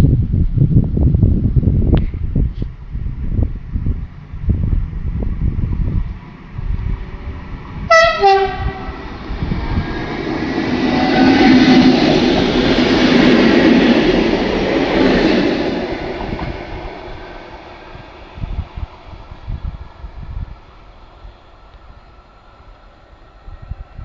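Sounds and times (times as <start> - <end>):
train wheels on rails: 0.8 - 24.0
train horn two notes: 7.9 - 9.1.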